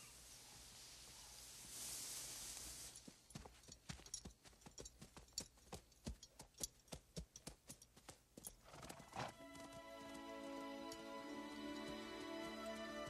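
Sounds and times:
horse hooves clopping on ground: 3.0s - 13.0s
soft film score music: 9.0s - 13.0s.

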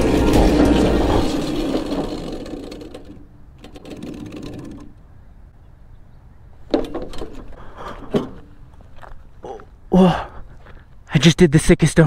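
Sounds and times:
electric kart whirring and rattling: 0.0s - 5.3s.

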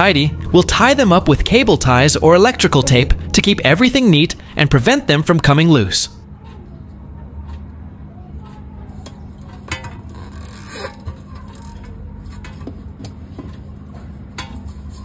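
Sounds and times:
cable tie zip: 10.2s - 11.0s.

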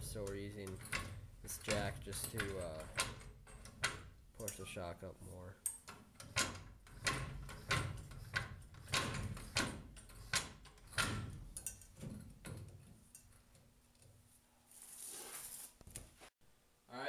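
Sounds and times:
hydraulic floor jack pumping clunks: 5.9s - 12.9s.

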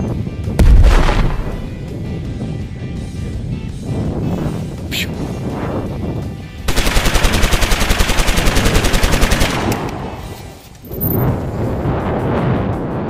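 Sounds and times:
automatic gunfire: 6.7s - 9.9s.

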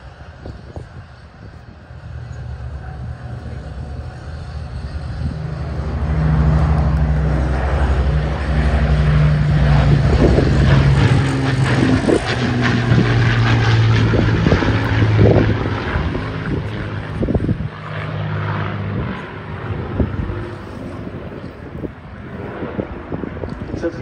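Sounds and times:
bomber piston engines droning: 0.0s - 24.0s.

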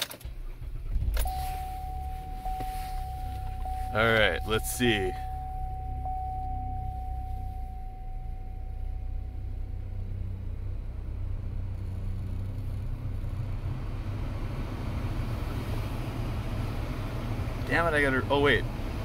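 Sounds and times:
steady low hum: 0.3s - 13.0s
thin steady tone: 1.2s - 10.4s.

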